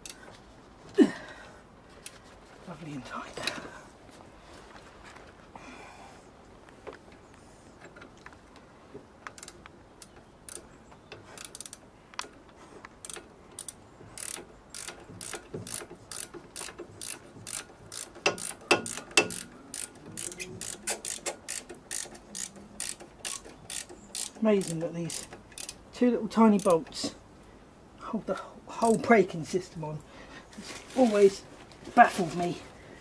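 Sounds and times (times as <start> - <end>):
ratchet spanner clicking: 9.3 - 12.4, 13.0 - 25.8, 26.6 - 26.9.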